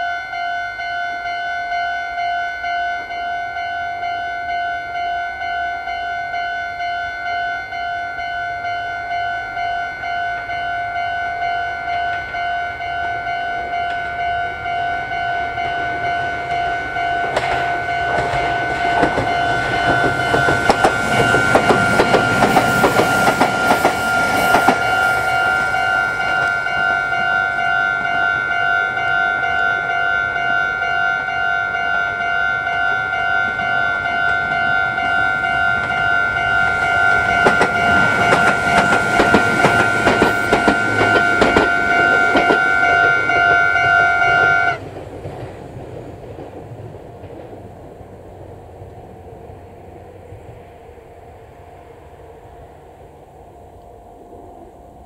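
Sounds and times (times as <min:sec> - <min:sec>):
level crossing warning bell: 0:00.0 - 0:44.8
train wheels clattering over rail joints: 0:16.7 - 0:27.3, 0:35.0 - 0:48.9.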